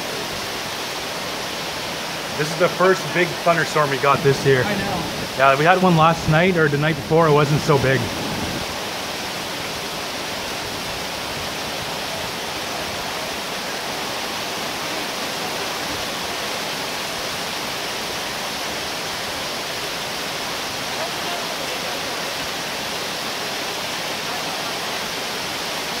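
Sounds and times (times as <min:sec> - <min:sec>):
heavy rain rushing: 0:00.0 - 0:26.0.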